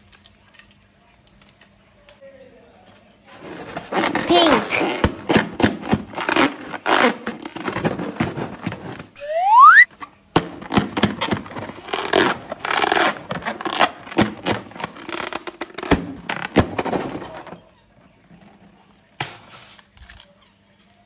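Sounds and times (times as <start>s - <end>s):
slime squishing and crackling: 3.8s - 8.7s, 10.5s - 16.8s
rising balloon squeak: 9.2s - 9.9s.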